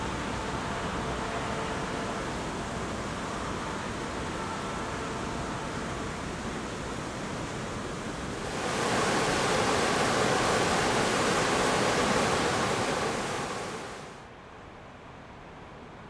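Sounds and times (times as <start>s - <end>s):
river rapids rushing: 8.4s - 14.2s.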